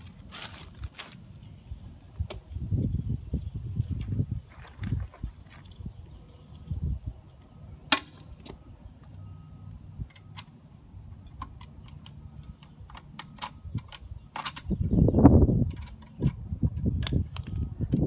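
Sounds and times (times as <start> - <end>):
sharp ringing click: 7.9 - 8.7.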